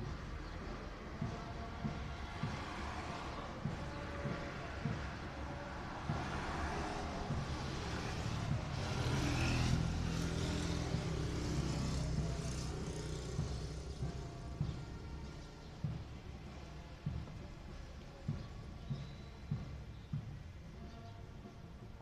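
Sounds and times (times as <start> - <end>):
vehicle passing: 0.0 - 15.2
traffic rumble: 0.0 - 22.0.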